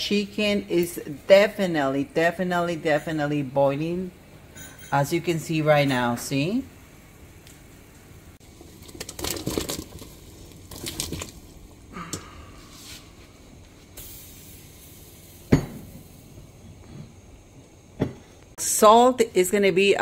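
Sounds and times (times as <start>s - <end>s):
vegetables splashing into broth: 8.6s - 11.6s.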